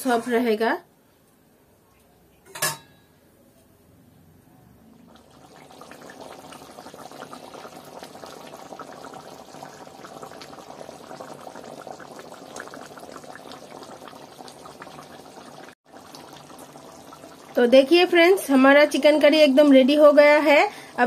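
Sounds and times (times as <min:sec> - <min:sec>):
curry bubbling and popping: 0:05.0 - 0:20.1.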